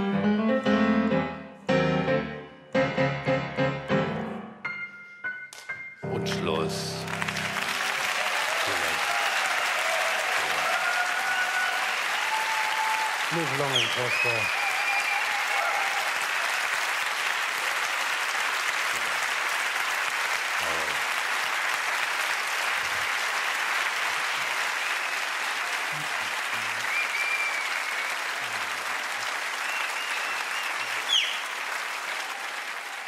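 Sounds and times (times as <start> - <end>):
audience applauding: 6.2 - 33.0
high whistles: 11.7 - 15.6, 26.8 - 28.2, 29.5 - 31.6.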